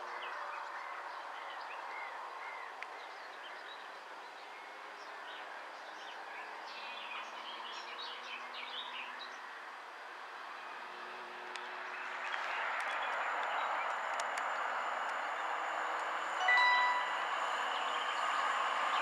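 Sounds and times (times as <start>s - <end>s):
distant train drone: 10.7s - 19.0s.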